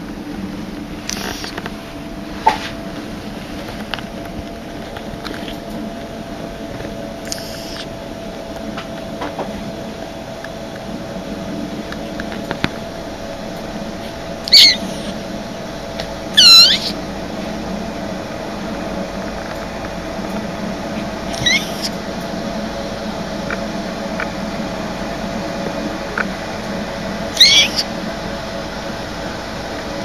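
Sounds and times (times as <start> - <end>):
kitten mewing: 1.1 - 1.6, 7.2 - 7.9, 14.4 - 15.2, 16.3 - 17.0, 21.3 - 22.0, 27.3 - 27.9.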